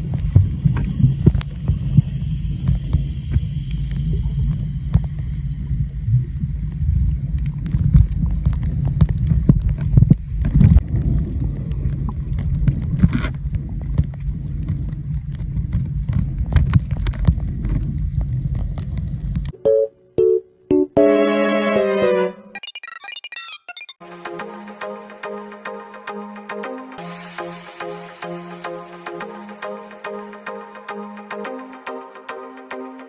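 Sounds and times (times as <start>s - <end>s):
muffled underwater rumble: 0.0s - 19.5s
underwater clicks and crackles: 0.0s - 19.5s.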